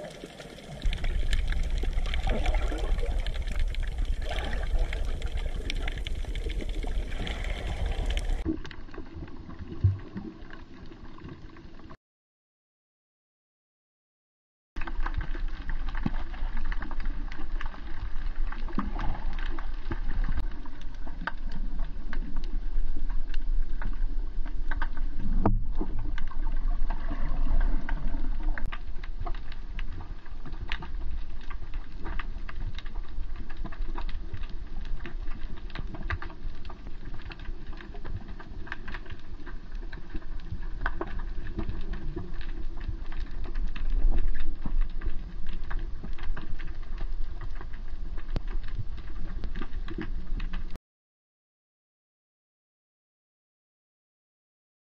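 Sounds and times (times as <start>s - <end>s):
underwater crackle of clicks: 0.0s - 11.6s, 14.8s - 50.8s
low underwater rumble: 0.0s - 12.0s, 14.8s - 50.8s.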